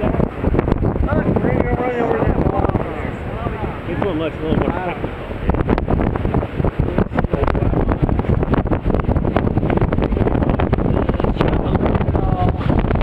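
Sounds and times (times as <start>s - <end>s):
river whitewater rushing: 0.0s - 12.1s
wind buffeting microphone: 0.0s - 13.0s.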